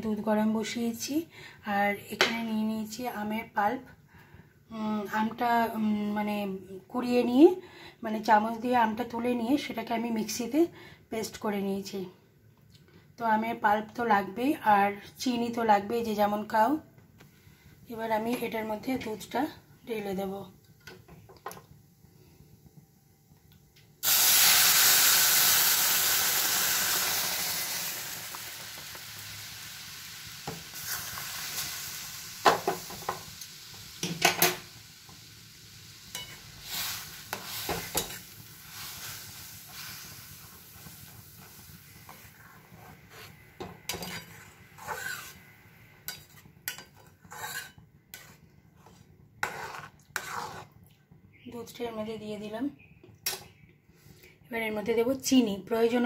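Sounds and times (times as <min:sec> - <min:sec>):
milk sizzling in hot pan: 0:20.0 - 0:50.8
spatula scraping metal pan: 0:42.1 - 0:45.4, 0:46.1 - 0:50.7.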